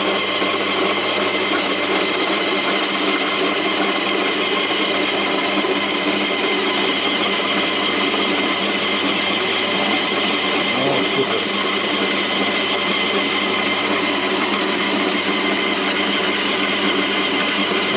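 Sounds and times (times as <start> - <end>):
electric shredder motor humming: 0.0 - 17.9.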